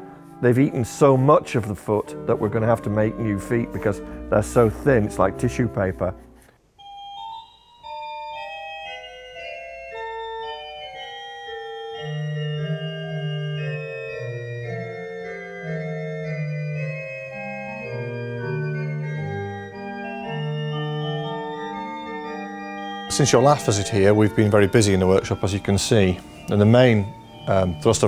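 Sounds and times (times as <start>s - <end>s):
pipe organ melody: 0.0s - 28.0s
organ bass line: 12.4s - 28.0s.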